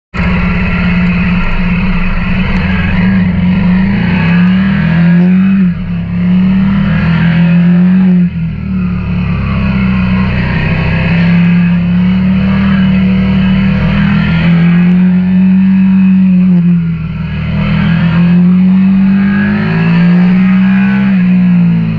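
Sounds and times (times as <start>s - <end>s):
motorcycle engine running: 0.1s - 21.9s.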